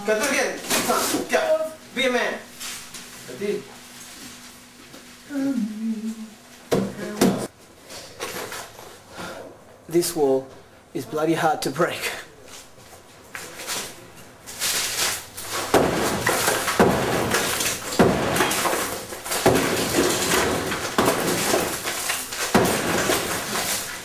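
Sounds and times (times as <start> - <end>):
rubble falling: 14.6 - 24.0.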